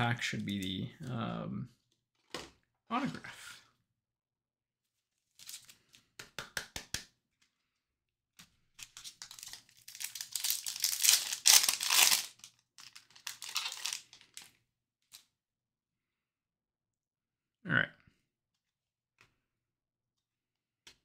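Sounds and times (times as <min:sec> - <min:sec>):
wrapper crinkling and tearing: 0:09.0 - 0:14.5.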